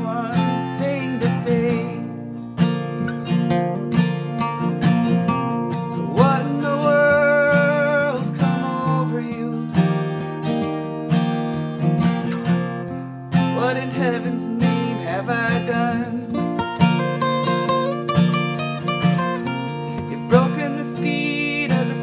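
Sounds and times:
person singing: 0:00.0 - 0:02.2, 0:05.7 - 0:10.7, 0:13.4 - 0:22.0
acoustic guitar folk song: 0:00.0 - 0:22.0.

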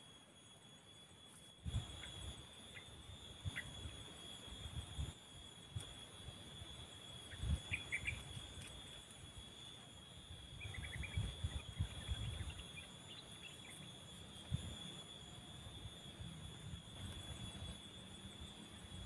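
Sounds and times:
insects buzzing: 0:00.0 - 0:19.0.

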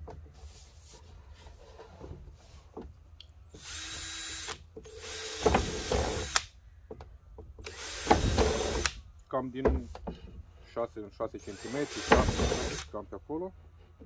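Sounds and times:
electric drill boring plastic: 0:03.6 - 0:06.4, 0:07.7 - 0:08.9, 0:11.5 - 0:12.9.

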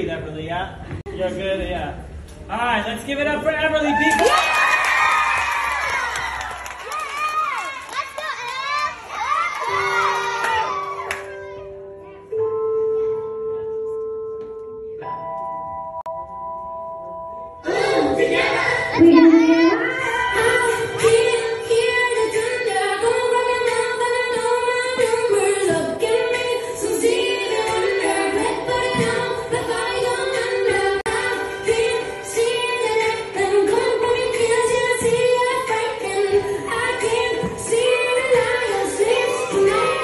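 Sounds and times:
slow song with woman singing: 0:18.9 - 0:40.0.

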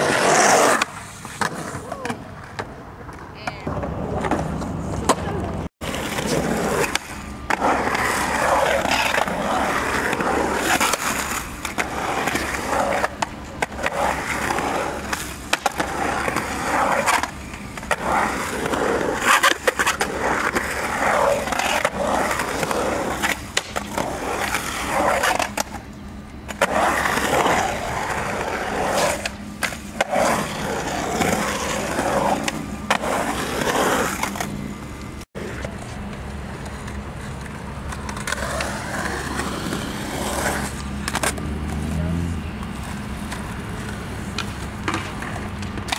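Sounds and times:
skateboard wheels rolling on concrete: 0:00.0 - 0:45.9
skateboard clacking on concrete: 0:10.8 - 0:25.9.

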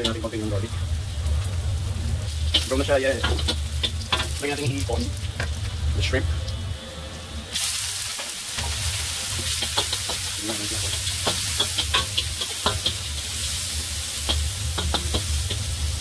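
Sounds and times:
shrimp sizzling in hot oil: 0:00.0 - 0:06.6, 0:07.5 - 0:16.0
metal spatula scraping a wok: 0:08.6 - 0:16.0.

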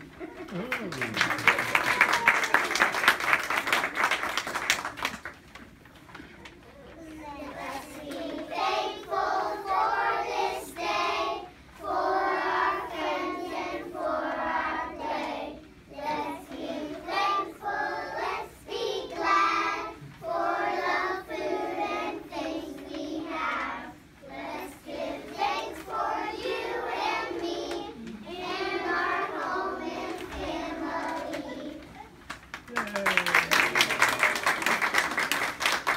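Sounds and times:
children singing in unison: 0:07.6 - 0:31.8.

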